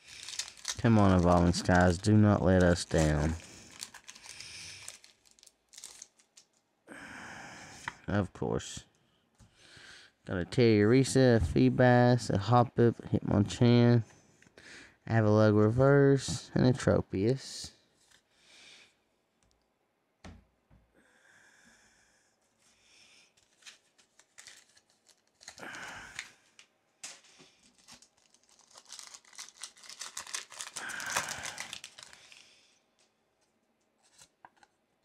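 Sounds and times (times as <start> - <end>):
foil wrapper crinkling: 0.0 - 6.6, 23.4 - 32.6
foil wrapper tearing: 0.0 - 6.6, 23.4 - 26.4, 27.0 - 32.6.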